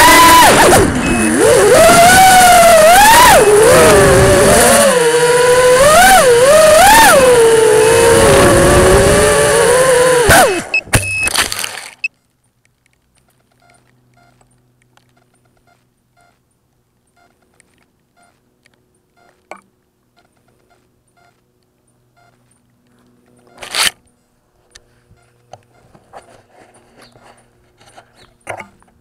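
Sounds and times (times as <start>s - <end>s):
faint short electronic beeps: 10.7s - 11.4s, 13.6s - 14.5s, 15.2s - 16.4s, 17.1s - 17.4s, 18.2s - 18.4s, 19.1s - 19.6s, 20.2s - 21.4s, 22.1s - 22.4s.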